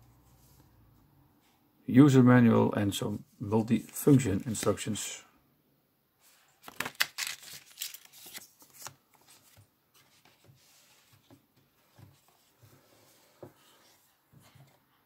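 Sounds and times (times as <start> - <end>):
paper rustling and crackling: 6.3 - 14.8.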